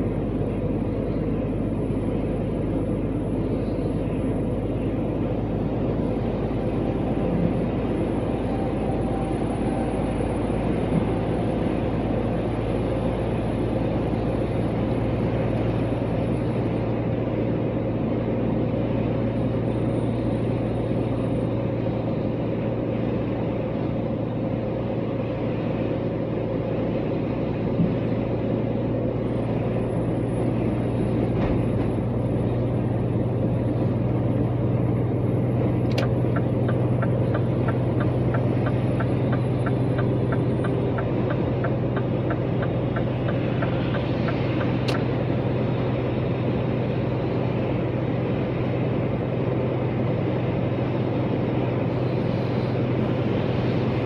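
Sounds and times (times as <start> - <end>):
engine and road noise: 0.0 - 54.0
click: 35.9 - 36.1.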